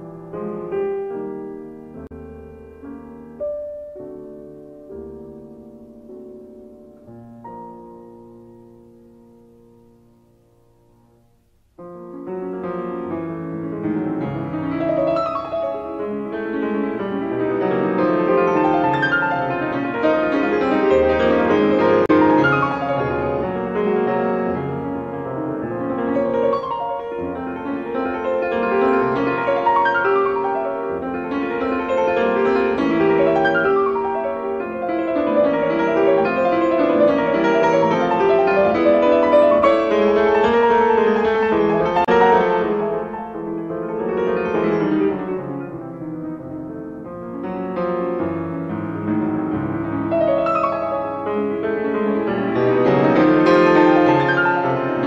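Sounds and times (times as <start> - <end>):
classical piano music: 0.0 - 55.0.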